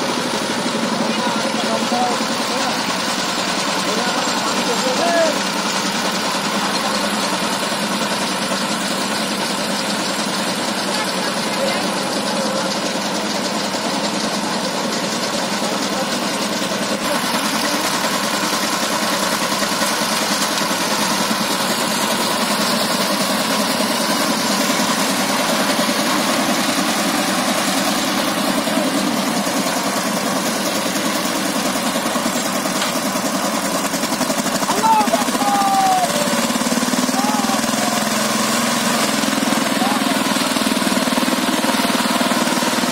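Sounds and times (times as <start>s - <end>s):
diesel engine chugging: 0.0s - 42.9s.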